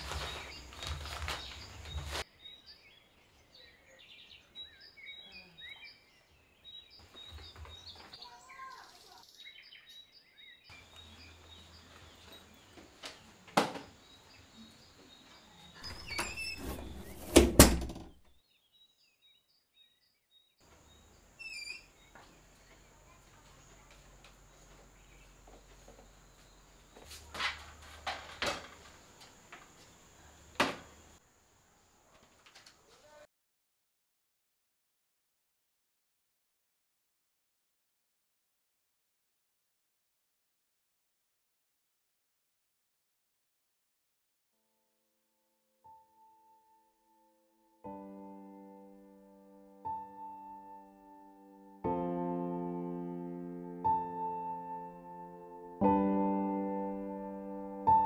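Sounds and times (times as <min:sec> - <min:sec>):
birds chirping faintly: 0:00.0 - 0:17.4, 0:18.4 - 0:32.1
knocks and thuds: 0:16.6 - 0:18.2.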